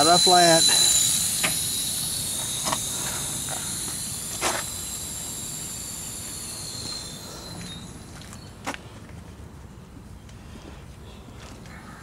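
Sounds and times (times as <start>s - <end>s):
air hissing from tire valve: 0.0s - 8.7s.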